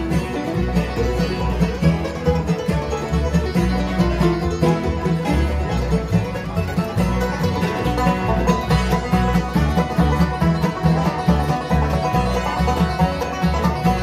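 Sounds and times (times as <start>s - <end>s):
bluegrass band playing: 0.0s - 14.0s.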